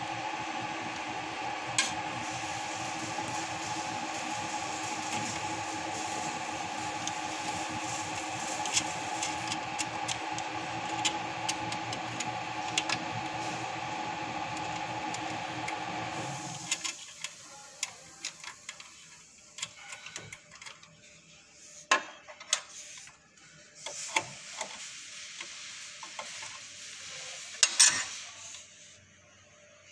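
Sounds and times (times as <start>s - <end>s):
steady machine hum: 0.0s - 16.7s.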